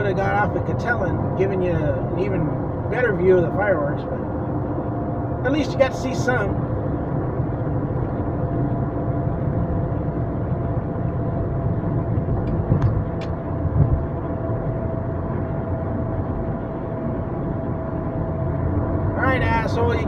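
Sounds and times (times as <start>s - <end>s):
car road and engine noise: 0.0s - 20.0s
low thumps: 12.0s - 14.5s.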